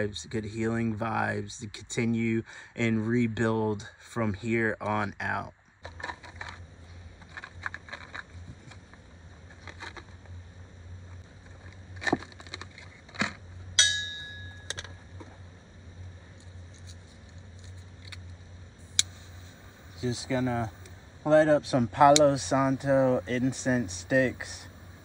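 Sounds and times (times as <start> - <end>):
low steady hum: 0.0 - 25.0
short ringing clink: 13.8 - 14.8.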